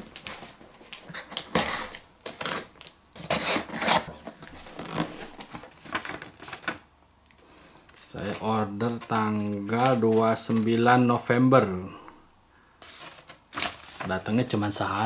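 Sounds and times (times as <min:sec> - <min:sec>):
packaging rustling and crinkling: 0:00.0 - 0:06.9, 0:07.8 - 0:10.9, 0:12.8 - 0:14.5.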